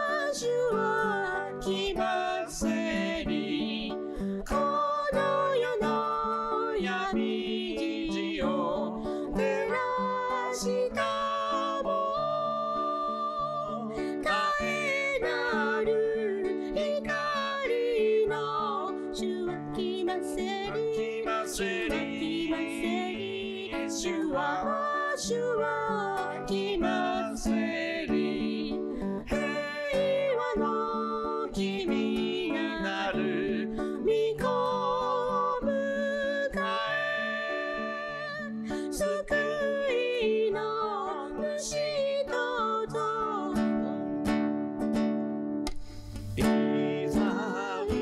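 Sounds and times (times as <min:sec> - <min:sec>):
person singing: 0:00.0 - 0:44.2, 0:46.2 - 0:48.0
strummed acoustic string instrument: 0:00.0 - 0:48.0.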